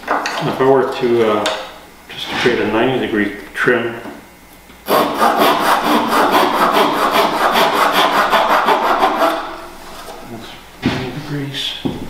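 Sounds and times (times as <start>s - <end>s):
hand saw cutting wood: 4.9s - 9.5s.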